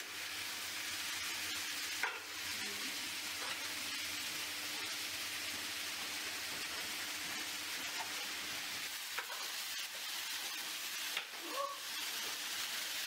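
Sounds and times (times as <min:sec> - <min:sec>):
chicken sizzling in a frying pan: 0:00.0 - 0:13.0.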